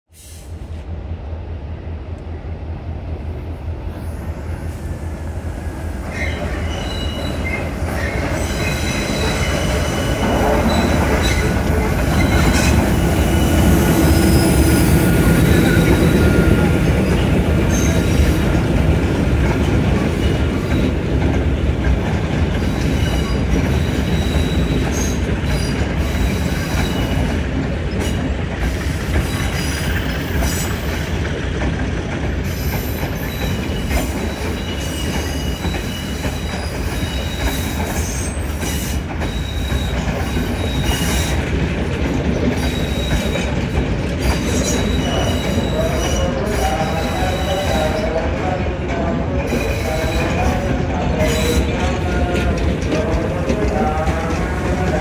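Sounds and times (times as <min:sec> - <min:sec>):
diesel locomotive engine rumbling: 0:00.1 - 0:55.0
high-pitched wheel squeal: 0:06.1 - 0:11.5, 0:32.6 - 0:41.3, 0:44.3 - 0:47.9.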